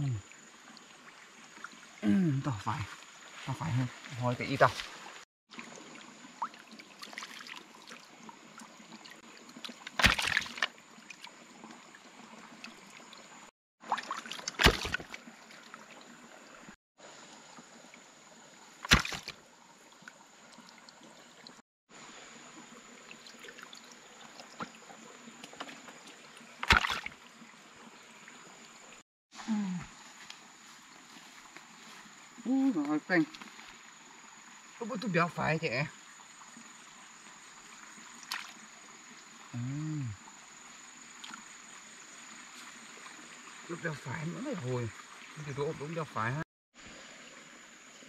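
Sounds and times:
water sloshing and trickling: 0:00.0 - 0:29.0, 0:29.9 - 0:48.0
loud water splashes: 0:06.4 - 0:07.6, 0:09.6 - 0:10.7, 0:13.8 - 0:15.3, 0:18.8 - 0:19.4, 0:26.6 - 0:27.2.

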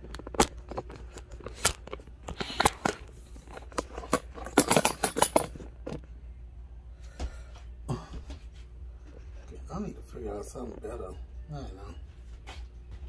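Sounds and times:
phone handling clicks and rustles: 0:00.0 - 0:06.1.

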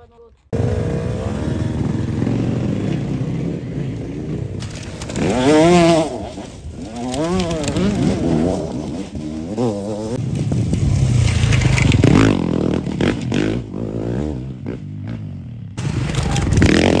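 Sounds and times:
dirt bikes revving: 0:00.5 - 0:17.0.

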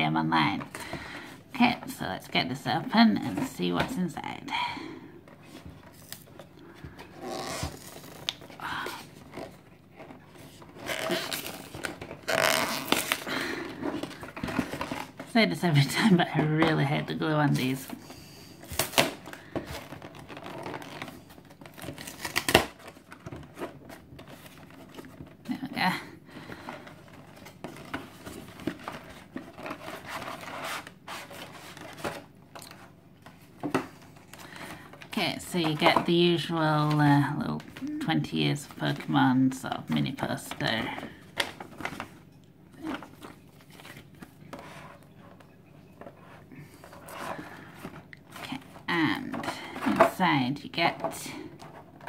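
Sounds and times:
cardboard and plastic crinkling: 0:05.2 - 0:52.0
cardboard flap tearing and scraping: 0:07.1 - 0:08.6, 0:10.5 - 0:15.3, 0:18.6 - 0:25.1.

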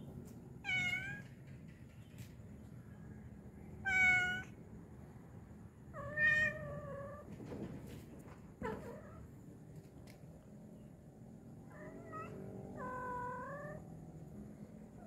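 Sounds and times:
cat meowing: 0:00.6 - 0:01.3, 0:03.8 - 0:04.6, 0:06.0 - 0:07.3, 0:11.7 - 0:13.9.

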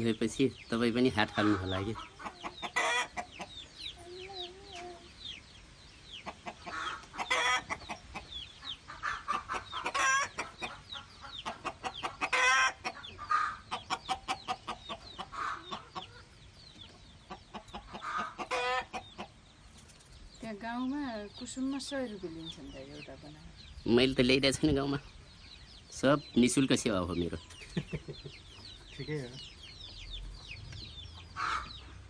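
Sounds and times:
chickens clucking: 0:00.0 - 0:32.0
chicken squawks: 0:06.3 - 0:16.3, 0:17.8 - 0:19.0, 0:31.4 - 0:31.8.

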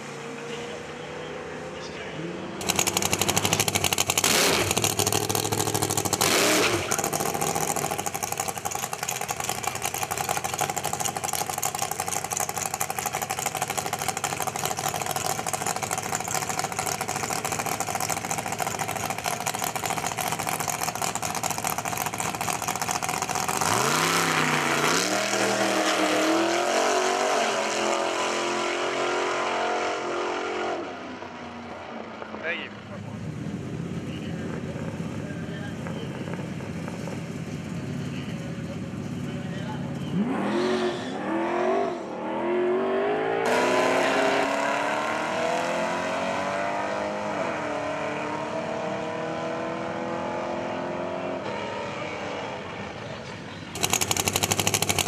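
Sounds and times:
car engine running and revving: 0:00.0 - 0:55.0.

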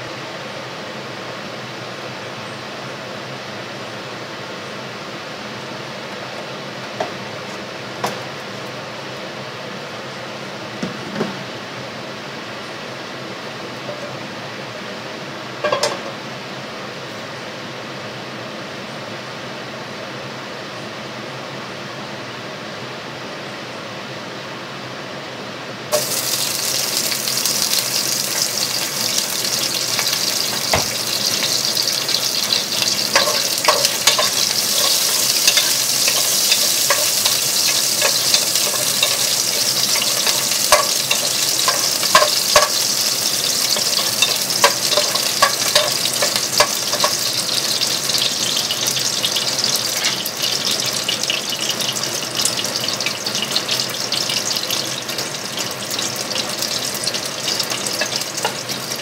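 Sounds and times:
garlic sizzling in hot oil: 0:25.9 - 0:59.0
wooden spatula tapping pan: 0:30.0 - 0:42.8, 0:43.6 - 0:47.2.

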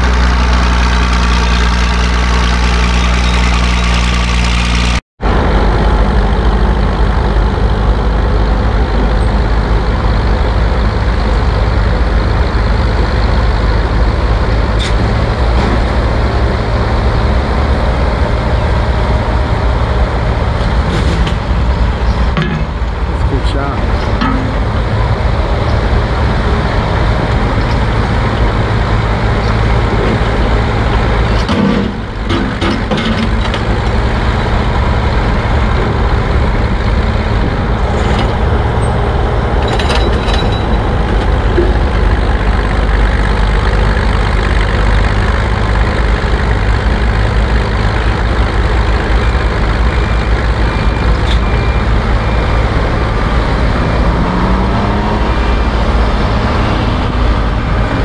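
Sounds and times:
shovel engine running under load: 0:00.0 - 0:58.0
machinery clanks: 0:18.9 - 0:53.8.

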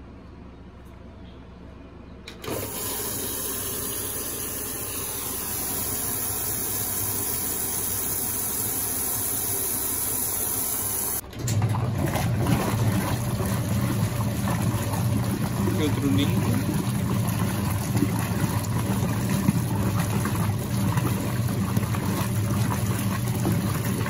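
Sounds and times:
low rough washing machine sound: 0:00.0 - 0:24.0
water running into washing machine: 0:02.4 - 0:24.0.

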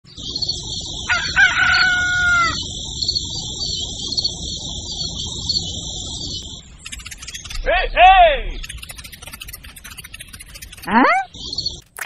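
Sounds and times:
steady high buzz: 0:00.1 - 0:11.8
rooster crowing: 0:01.0 - 0:02.6.

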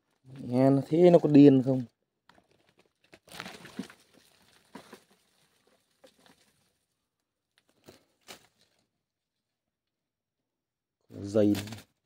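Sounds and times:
soil and rock scraping: 0:00.0 - 0:09.0.

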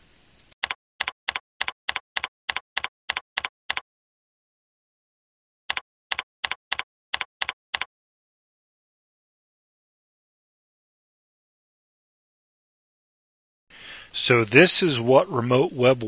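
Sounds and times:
keyboard keystroke clicks: 0:00.6 - 0:03.8, 0:05.7 - 0:07.9.

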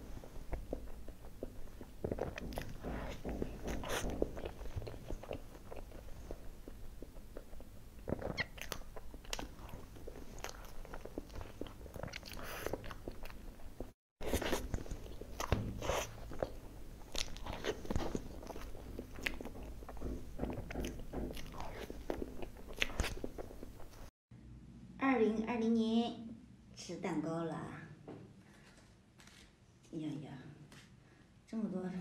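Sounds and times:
wet chewing and lip smacking: 0:00.2 - 0:24.1.

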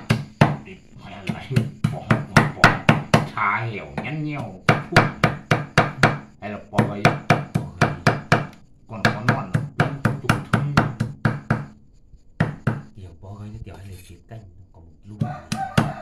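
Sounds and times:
cleaver chopping on wooden block: 0:00.0 - 0:00.6, 0:01.2 - 0:03.4, 0:04.0 - 0:11.7, 0:12.4 - 0:12.9, 0:15.2 - 0:16.0.

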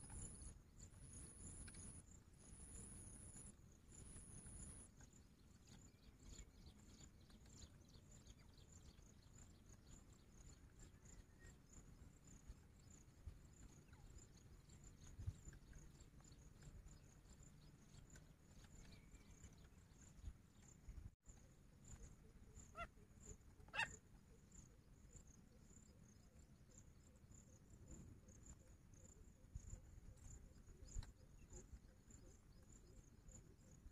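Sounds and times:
faint high insect chirping: 0:00.0 - 0:33.9
francolin calls: 0:21.9 - 0:24.4.

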